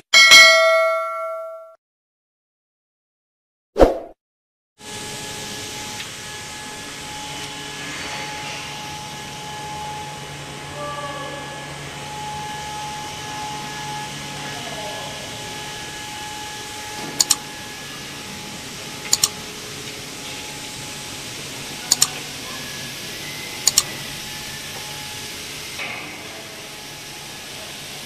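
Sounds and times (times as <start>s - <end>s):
sharp double mouse clicks: 17.2s - 17.4s, 19.1s - 19.3s, 21.9s - 22.2s, 23.7s - 23.9s.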